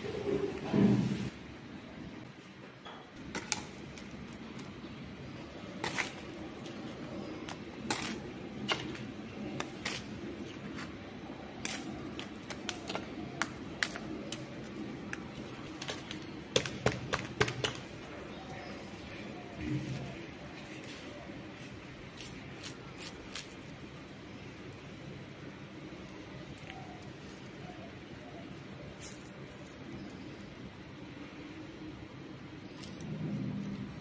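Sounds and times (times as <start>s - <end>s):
metal spoon scooping soil: 5.4s - 21.0s.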